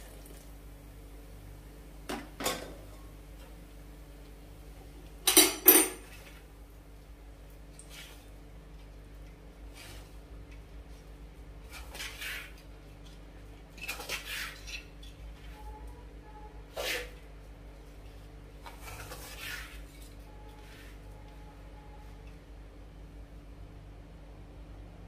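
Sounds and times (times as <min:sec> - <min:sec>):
steady low hum: 0:00.0 - 0:13.9, 0:14.6 - 0:25.0.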